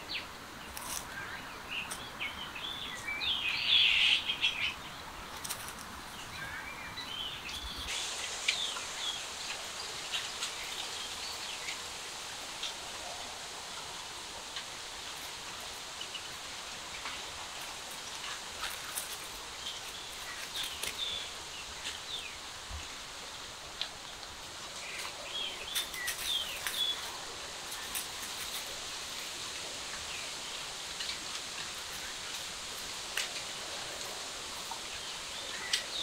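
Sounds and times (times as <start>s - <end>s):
steady outdoor hiss: 0.0s - 36.0s
dry leaves and grass rustling: 0.6s - 2.8s, 5.2s - 36.0s
small birds chirping: 14.0s - 23.2s, 23.8s - 36.0s.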